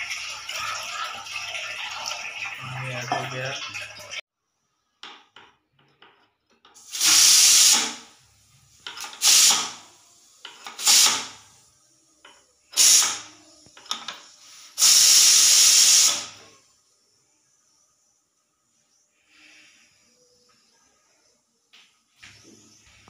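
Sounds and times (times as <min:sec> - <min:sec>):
pressure cooker steam hissing: 0:06.8 - 0:12.0, 0:12.6 - 0:16.6.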